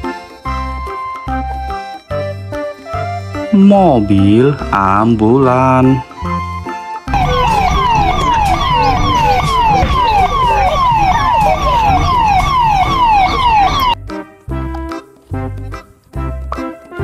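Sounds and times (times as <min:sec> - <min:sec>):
upbeat children's music: 0:00.0 - 0:17.0
police siren falling sweep: 0:07.1 - 0:14.0.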